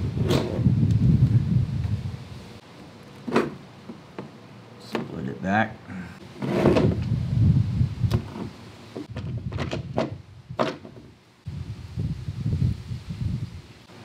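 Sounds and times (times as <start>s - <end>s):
cable rubbing and scraping: 6.4s - 7.0s.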